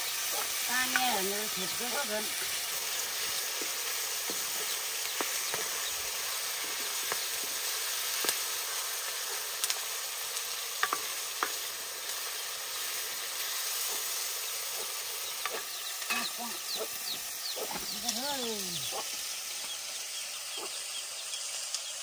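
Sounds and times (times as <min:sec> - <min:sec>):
chicken sizzling in wok: 0:00.0 - 0:22.0.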